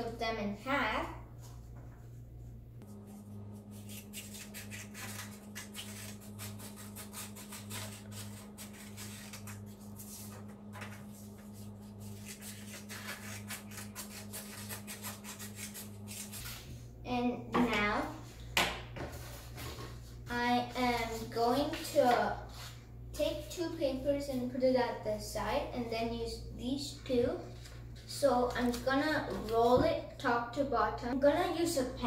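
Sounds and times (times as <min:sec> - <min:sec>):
steady low hum: 0:00.0 - 0:32.0
scissors snipping paper: 0:03.8 - 0:09.6, 0:12.2 - 0:16.5.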